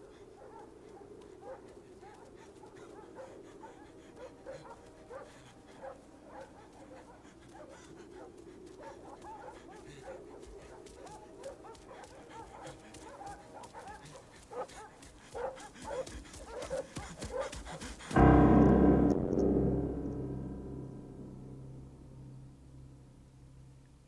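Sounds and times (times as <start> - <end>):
held keyboard chord: 18.2 - 22.7.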